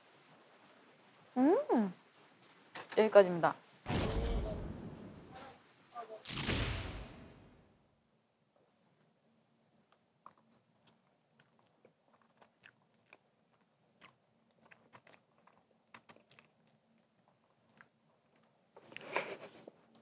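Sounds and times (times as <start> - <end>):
wet chewing smacks and clicks: 9.9 - 19.2.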